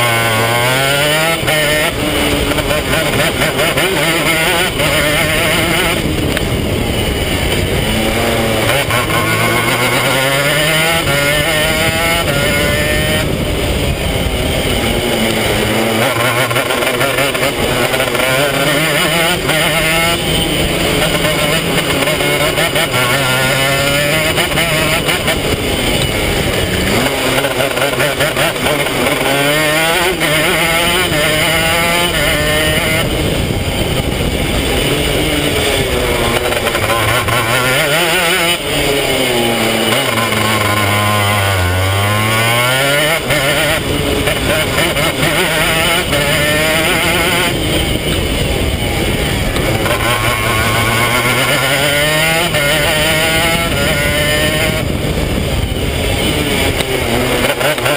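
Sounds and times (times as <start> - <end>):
racing kart engine revving: 0.0 - 57.9.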